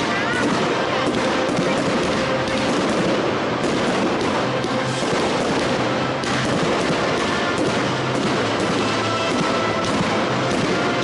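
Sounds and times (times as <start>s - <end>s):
fireworks crackling: 0.0s - 11.0s
music: 0.0s - 11.0s.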